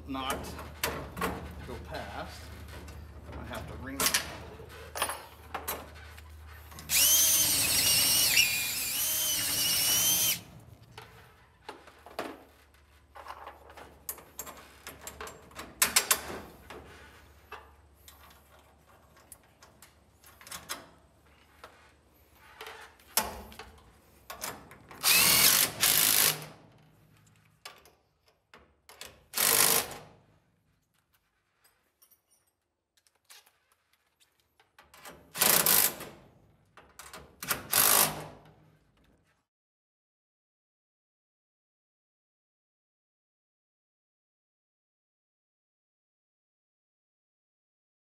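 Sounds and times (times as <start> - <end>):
cordless drill motor whining: 6.9 - 10.5, 25.0 - 26.3.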